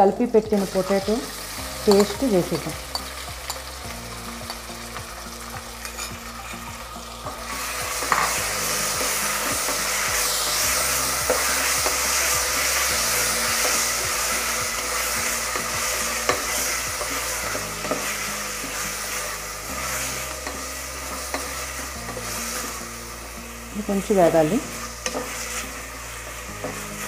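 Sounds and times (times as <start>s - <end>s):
potatoes sizzling in oil: 0.0s - 27.0s
spatula clicking and scraping pot: 2.9s - 3.8s, 25.0s - 25.6s.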